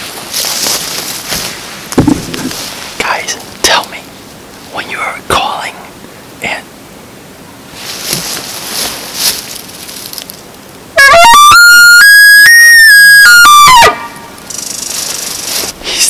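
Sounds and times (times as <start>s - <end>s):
elk bugle call: 11.0s - 14.3s.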